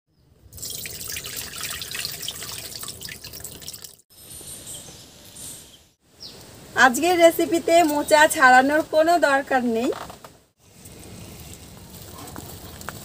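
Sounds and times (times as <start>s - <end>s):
water splashing and trickling: 0.4s - 4.1s.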